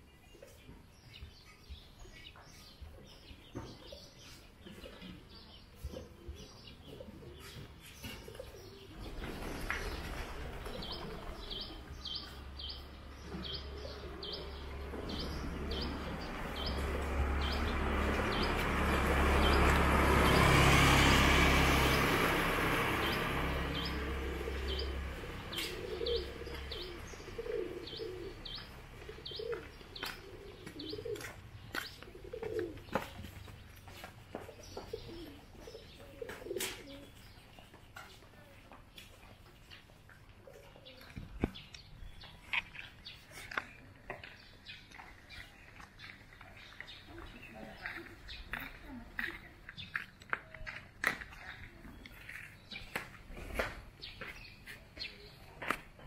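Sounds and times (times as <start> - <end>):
small birds chirping: 0.0 - 56.0
doves cooing: 5.9 - 33.6, 34.4 - 37.4
passing vehicle rumble: 8.8 - 33.9.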